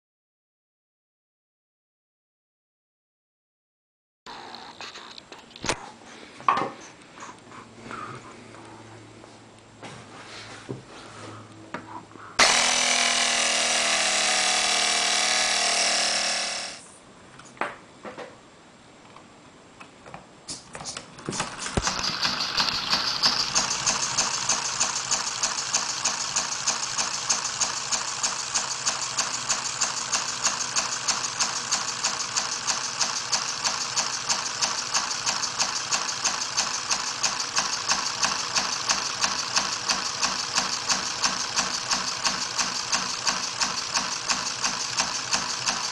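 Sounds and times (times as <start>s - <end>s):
air compressor motor running: 12.4s - 17.0s, 21.2s - 45.9s
pneumatic engine running: 12.4s - 17.0s, 21.2s - 45.9s.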